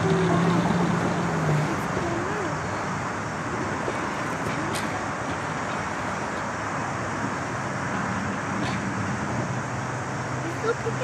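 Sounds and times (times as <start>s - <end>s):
vehicle rumbling hiss: 0.0s - 11.0s.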